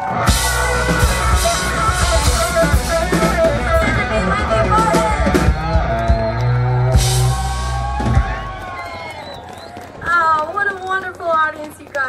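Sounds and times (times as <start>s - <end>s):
drum kit: 0.0s - 9.2s
electric guitars: 0.0s - 9.4s
bass: 0.0s - 10.4s.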